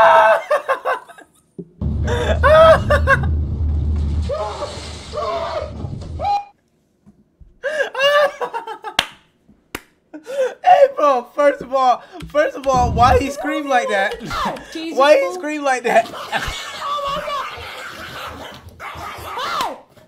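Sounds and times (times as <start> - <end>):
man laughing hard: 0.2 - 1.3, 1.9 - 3.4, 7.7 - 9.0
low rumble: 1.8 - 6.2, 12.7 - 13.4.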